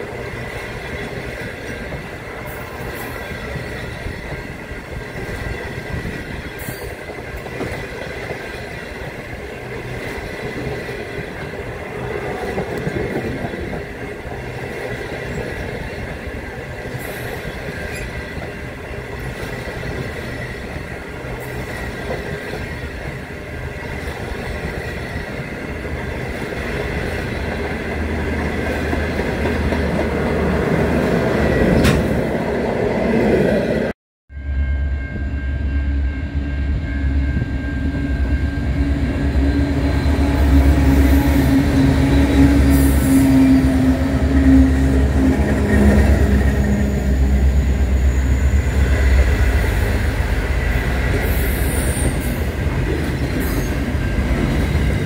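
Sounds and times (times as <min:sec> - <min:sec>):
train wheels rumbling on rails: 0:00.0 - 0:33.9, 0:35.0 - 0:55.0
faint high-pitched ring: 0:34.3 - 0:39.4.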